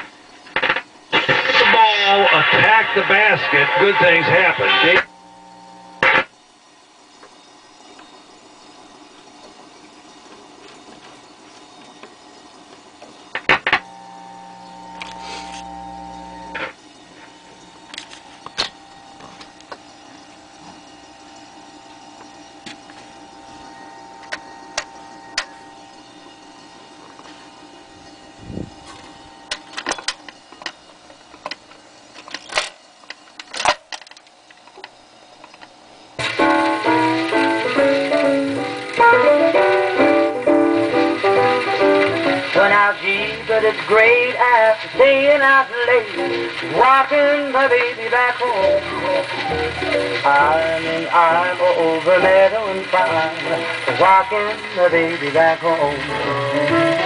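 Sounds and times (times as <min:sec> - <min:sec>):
radio hum: 0:00.0 - 0:06.3, 0:13.5 - 0:19.5
record changer clicks and clunks: 0:00.0 - 0:06.3, 0:13.1 - 0:17.3, 0:17.9 - 0:19.8, 0:22.2 - 0:25.7, 0:28.9 - 0:57.0
piano music from record: 0:36.2 - 0:57.0.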